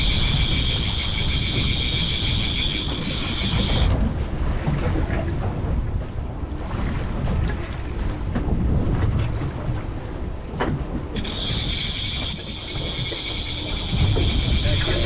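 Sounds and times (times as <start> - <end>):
high-pitched whine: 0.0 - 3.9, 11.2 - 15.0
outboard motor rumble: 0.0 - 15.0
wind buffeting microphone: 0.0 - 15.0.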